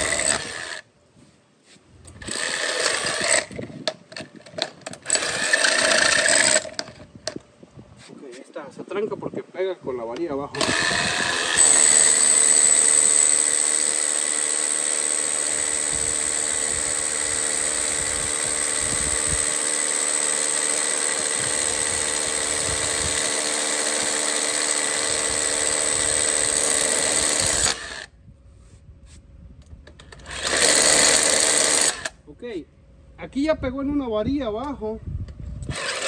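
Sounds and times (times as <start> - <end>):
hammer drill boring into concrete: 0.0 - 0.8, 2.2 - 3.6, 4.6 - 7.0, 10.6 - 28.1, 30.2 - 32.2, 35.6 - 36.0.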